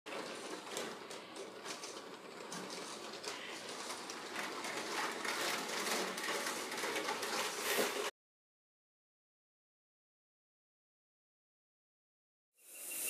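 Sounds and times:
wheels clicking over rail joints: 0:00.1 - 0:08.1.

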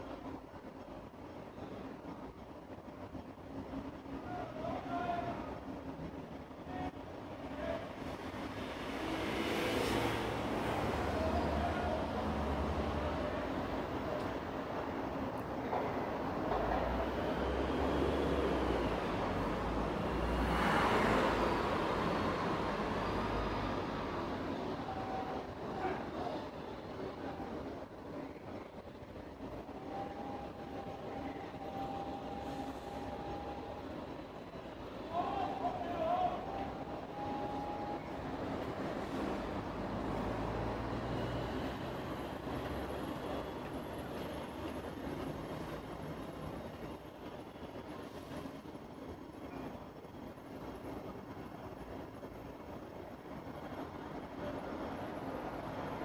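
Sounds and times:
cars passing on busy road: 0:00.0 - 0:56.0
trams rumbling on track: 0:00.0 - 0:56.0.

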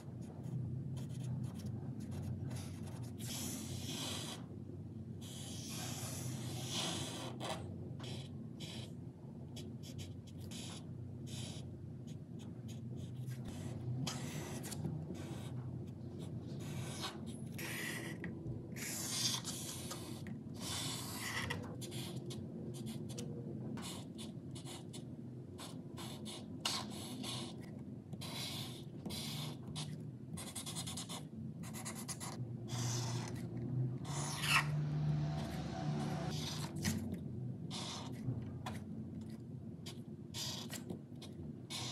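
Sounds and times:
marker scratching on paper: 0:00.0 - 0:04.5, 0:05.2 - 0:37.1, 0:37.7 - 0:41.9.

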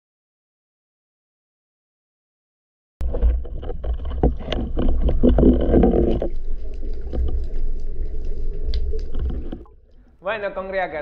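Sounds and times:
underwater low rumble: 0:03.0 - 0:10.1
underwater bubbling and crackling: 0:03.0 - 0:10.2.

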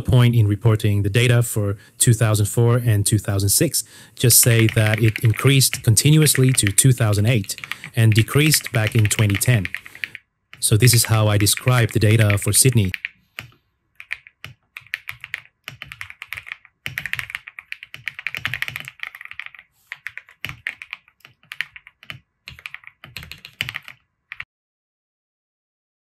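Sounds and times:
typing on computer keyboard: 0:04.5 - 0:24.4.

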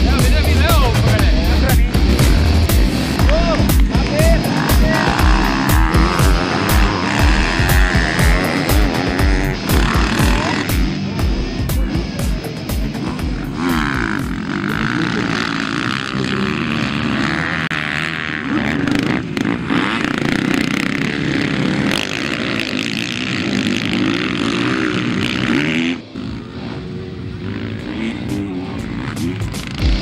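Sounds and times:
motocross bike engines revving: 0:00.0 - 0:30.0.

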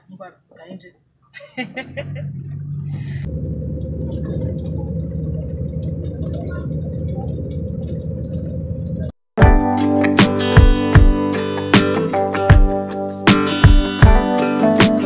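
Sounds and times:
bus engine and road noise: 0:00.0 - 0:09.3.

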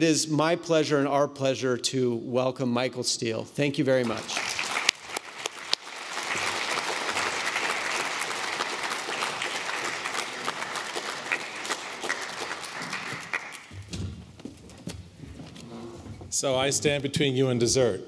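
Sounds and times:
audience applauding: 0:04.0 - 0:13.9.

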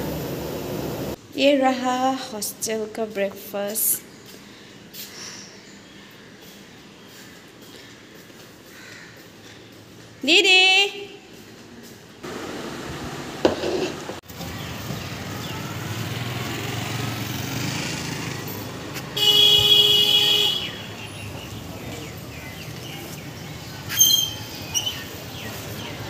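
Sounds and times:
road traffic: 0:00.0 - 0:01.4, 0:02.6 - 0:26.0
vehicle horn honk: 0:19.2 - 0:20.9.

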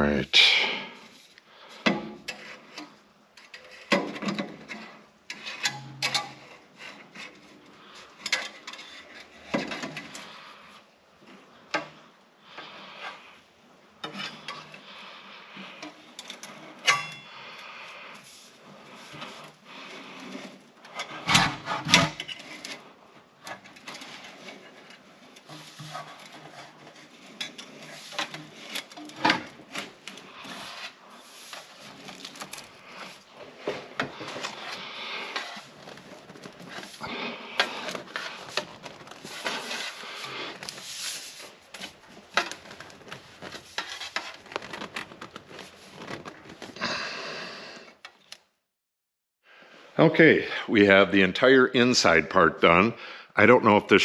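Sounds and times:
pipe rubbing at joints: 0:14.0 - 0:46.9.

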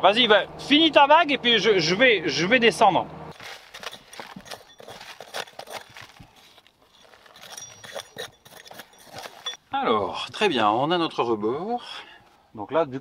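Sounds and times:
trowel scraping stony soil: 0:03.3 - 0:09.6.

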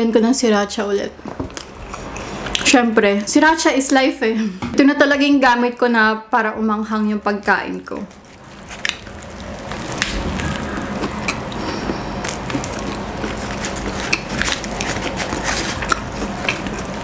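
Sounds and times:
paper wrapper crinkling: 0:08.0 - 0:17.0
biting and chewing: 0:08.1 - 0:17.0.

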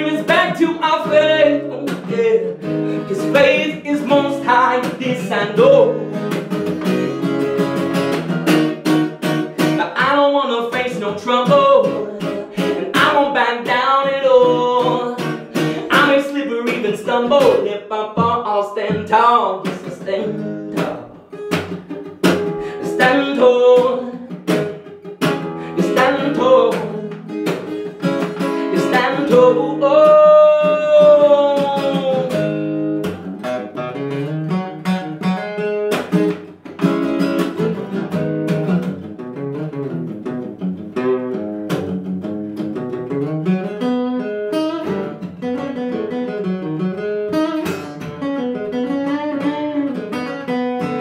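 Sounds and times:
man singing: 0:00.0 - 0:06.4, 0:09.6 - 0:21.4, 0:22.3 - 0:33.2
acoustic guitar: 0:00.0 - 0:51.0.

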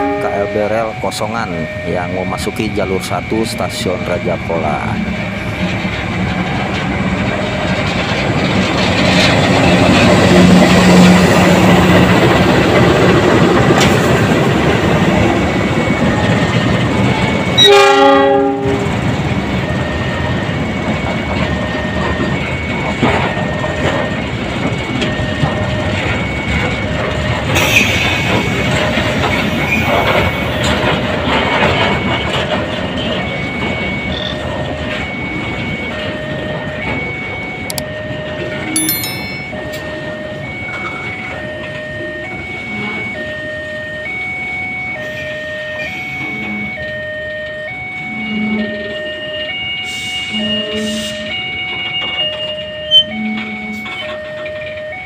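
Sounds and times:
train horn blast: 0:00.0 - 0:00.6, 0:17.6 - 0:18.9, 0:48.1 - 0:49.0, 0:49.9 - 0:51.3.

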